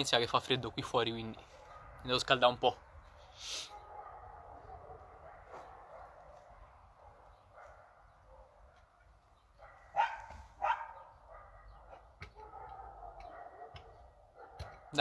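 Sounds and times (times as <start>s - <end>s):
dog barking loudly: 1.5s - 2.0s, 3.2s - 8.7s, 9.6s - 15.0s
faint dog sounds: 3.1s - 9.0s, 9.6s - 15.0s.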